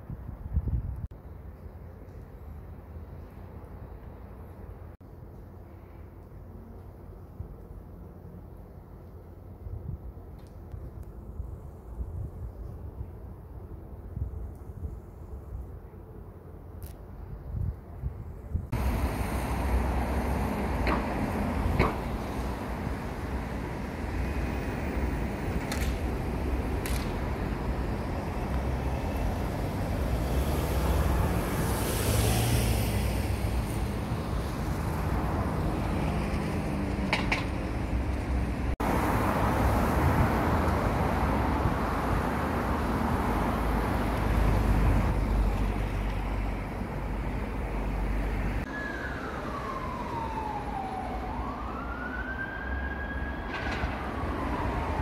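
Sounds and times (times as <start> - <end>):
street traffic: 0.0 - 55.0
emergency vehicle siren wailing: 48.6 - 55.0.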